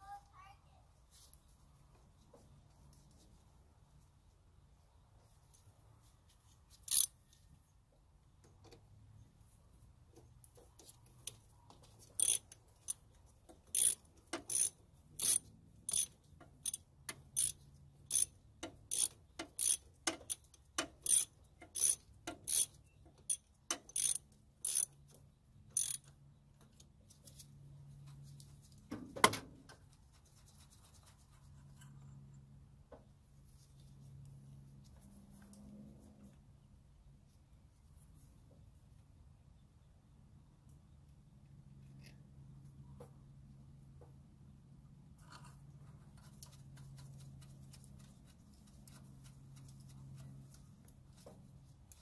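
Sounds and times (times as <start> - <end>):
socket ratchet clicking: 6.9 - 7.1, 12.2 - 13.0, 13.6 - 25.0, 25.8 - 26.1.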